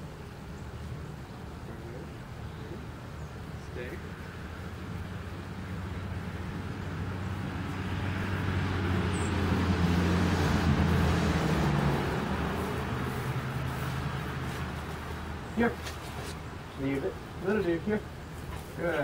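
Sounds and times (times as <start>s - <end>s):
vehicle driving past: 4.0s - 16.7s.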